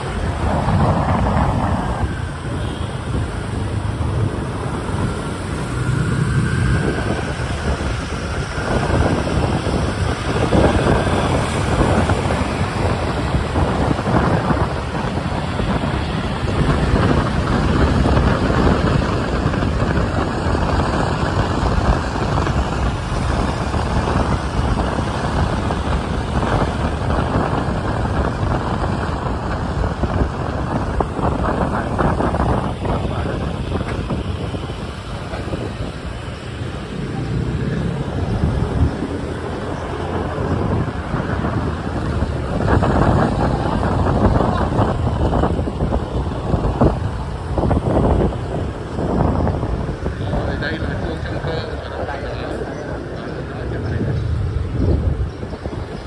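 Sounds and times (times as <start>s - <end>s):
traffic of motorbikes and cars: 0.0s - 56.0s
wind buffeting microphone: 0.0s - 56.0s.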